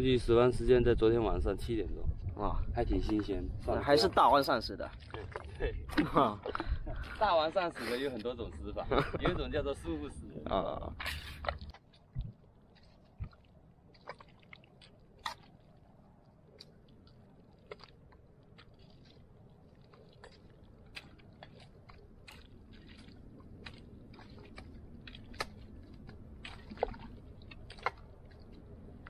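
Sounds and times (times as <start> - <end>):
wind rumble on microphone: 0.0 - 7.2, 8.4 - 12.4
boots squelching in mud: 4.1 - 7.3, 10.9 - 29.0.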